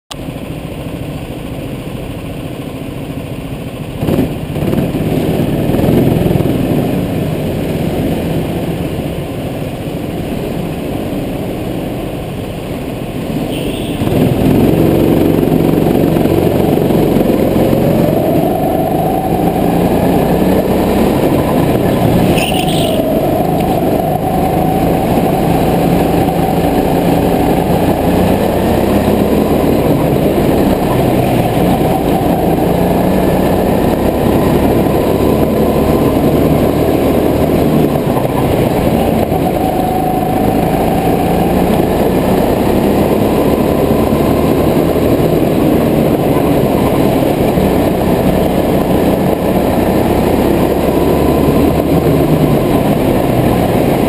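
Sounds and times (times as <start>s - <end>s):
go-kart engine: 0.1s - 54.0s
high tire squeals: 21.0s - 27.3s.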